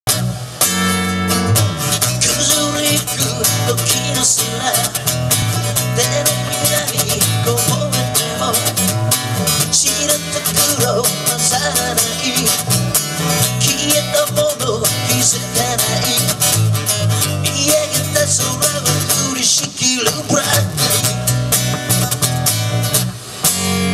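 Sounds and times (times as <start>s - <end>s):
electric bass: 0.0s - 23.9s
acoustic guitar: 0.1s - 23.9s
man singing: 2.0s - 21.3s.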